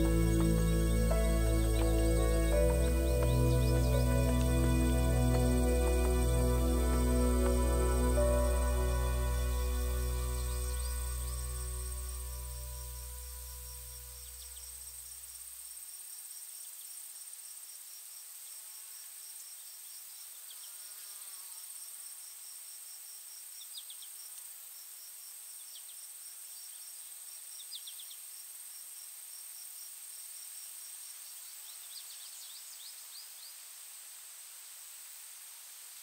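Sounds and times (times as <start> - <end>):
crickets chirping: 0.0 - 21.2
insect drone: 0.0 - 36.0.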